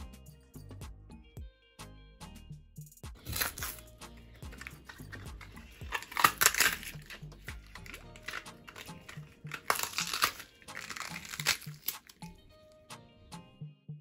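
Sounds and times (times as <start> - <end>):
soft background music: 0.0 - 14.0
bell pepper crunching and snapping: 3.2 - 12.8.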